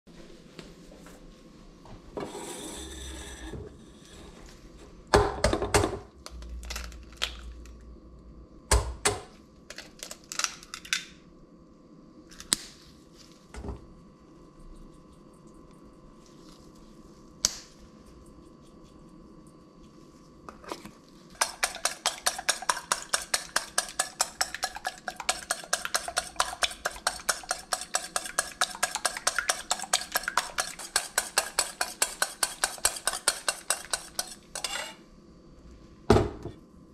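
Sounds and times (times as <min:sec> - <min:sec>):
eggs cracking into metal bowl: 0:09.1 - 0:11.2
whisk beating eggs in steel bowl: 0:21.3 - 0:35.0.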